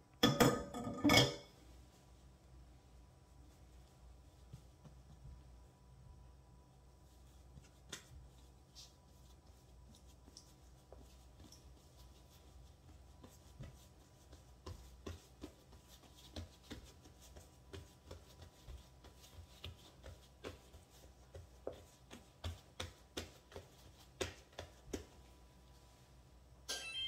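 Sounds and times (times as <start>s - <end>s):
fingertips patting dough: 3.8s - 5.8s, 6.8s - 25.7s.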